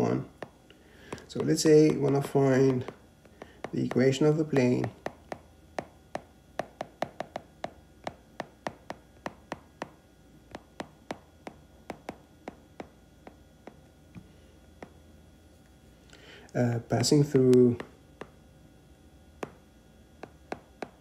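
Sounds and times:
stylus tapping on glass screen: 0:00.4 - 0:04.2, 0:04.8 - 0:13.8, 0:20.2 - 0:21.0.

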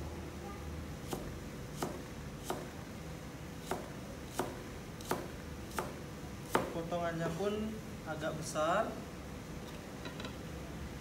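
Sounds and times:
cleaver chopping on cutting board: 0:01.0 - 0:02.7, 0:03.6 - 0:06.8.

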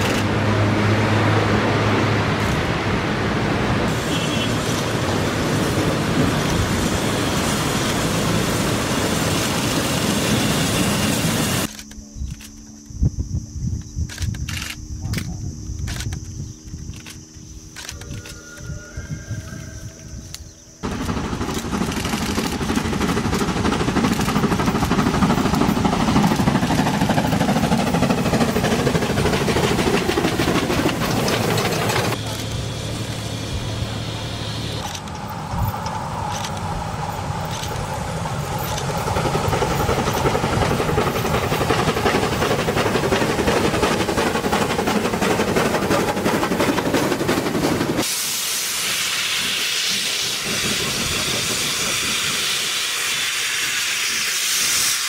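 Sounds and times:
steam train running: 0:00.0 - 0:12.4, 0:20.8 - 0:55.0
steam hissing: 0:03.8 - 0:11.7, 0:20.8 - 0:55.0.

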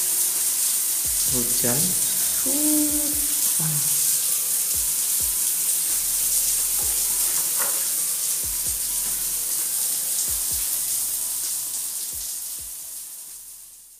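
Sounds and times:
shower water pouring on tiles: 0:00.0 - 0:13.9.

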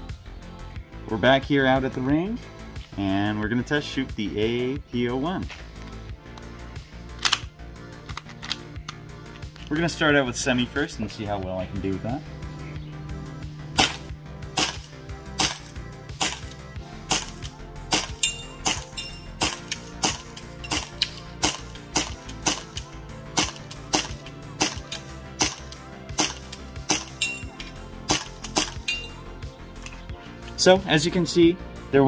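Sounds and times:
background music: 0:00.0 - 0:32.0
airsoft pistol shots: 0:13.8 - 0:16.5, 0:17.1 - 0:22.8, 0:23.4 - 0:27.2, 0:28.1 - 0:28.9.

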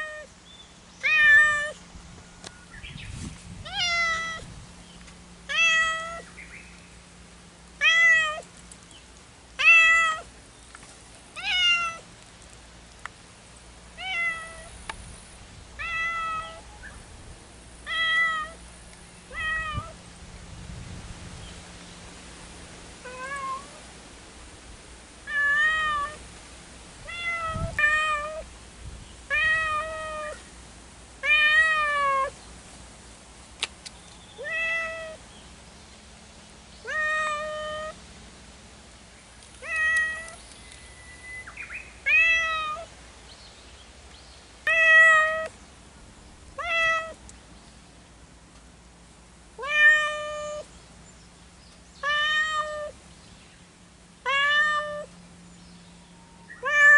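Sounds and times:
cats meowing: 0:01.0 - 0:01.8, 0:03.7 - 0:04.4, 0:05.5 - 0:06.2, 0:07.8 - 0:08.5, 0:09.6 - 0:10.3, 0:11.4 - 0:12.0, 0:14.0 - 0:14.7, 0:15.8 - 0:16.7, 0:17.9 - 0:18.6, 0:19.3 - 0:20.0, 0:23.1 - 0:23.8, 0:25.3 - 0:26.2, 0:27.0 - 0:28.4, 0:29.3 - 0:30.4, 0:31.2 - 0:32.4, 0:34.4 - 0:35.2, 0:36.8 - 0:38.0, 0:39.6 - 0:40.4, 0:42.1 - 0:42.9, 0:44.6 - 0:45.5, 0:46.6 - 0:47.2, 0:49.6 - 0:50.7, 0:52.0 - 0:53.0, 0:54.2 - 0:55.1, 0:56.6 - 0:56.9.

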